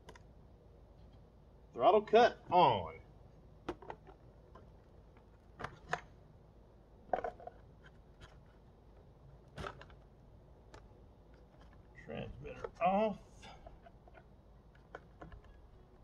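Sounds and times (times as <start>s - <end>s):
clicks and light knocks on plastic model: 13.7s - 15.6s.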